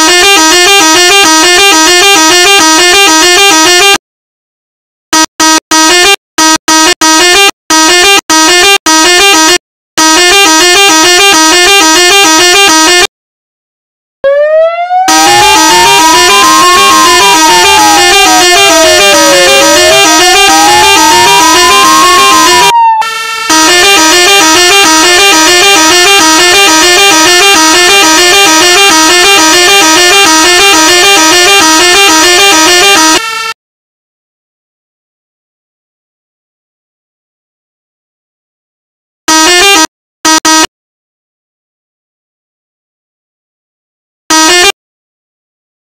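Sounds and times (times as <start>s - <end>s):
electronic siren horn blasts: 0.0s - 4.0s, 5.2s - 13.1s, 14.2s - 33.6s, 39.3s - 40.7s, 44.3s - 44.8s.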